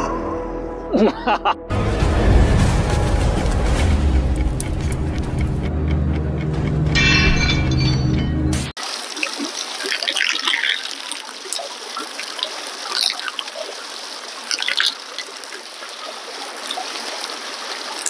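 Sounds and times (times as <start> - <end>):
water trickling over rocks: 8.8 - 18.0.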